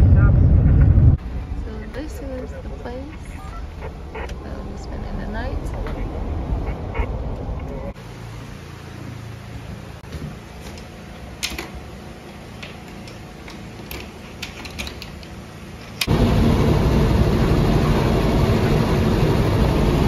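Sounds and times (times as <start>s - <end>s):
bus engine and road noise: 0.0s - 20.0s.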